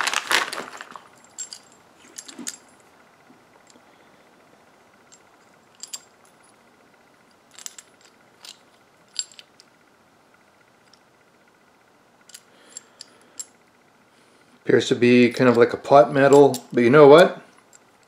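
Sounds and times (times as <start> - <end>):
metal scope parts clinking: 1.2 - 2.8, 16.3 - 16.8.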